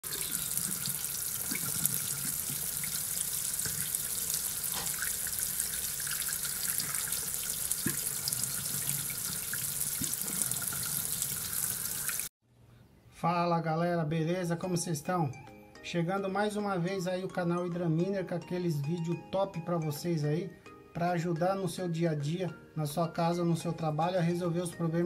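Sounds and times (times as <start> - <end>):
tap water running into sink: 0.0 - 12.3
water drips and splashes: 0.0 - 12.3.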